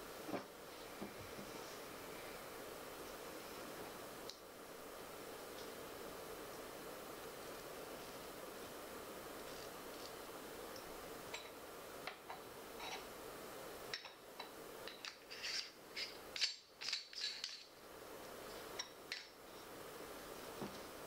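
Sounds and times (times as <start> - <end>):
steady hiss: 0.0 - 21.0.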